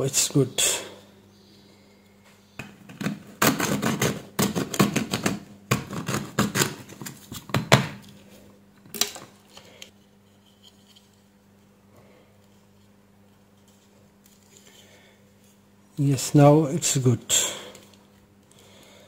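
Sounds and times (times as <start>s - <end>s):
plastic casing clicks and scrapes: 2.6s - 7.6s.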